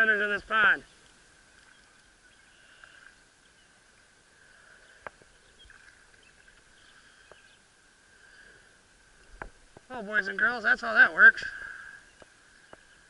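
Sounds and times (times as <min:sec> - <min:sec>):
steady faint hum: 0:00.0 - 0:13.0
bird chirps: 0:01.6 - 0:03.8, 0:04.6 - 0:08.6, 0:11.9 - 0:13.0.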